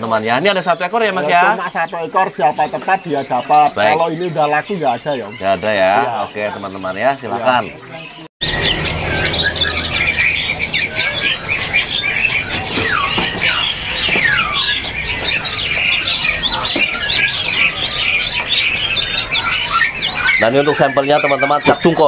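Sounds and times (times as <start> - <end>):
songbirds twittering: 0.0 - 22.0
downward-sliding bird whistles: 8.4 - 22.0.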